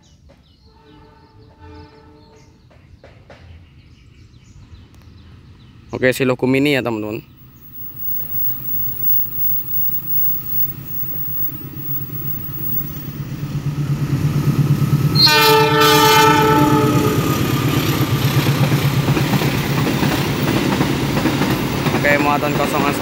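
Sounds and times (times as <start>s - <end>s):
train horn blast: 0.6s - 2.6s, 15.1s - 17.5s
locomotive engine rumble: 6.9s - 23.0s.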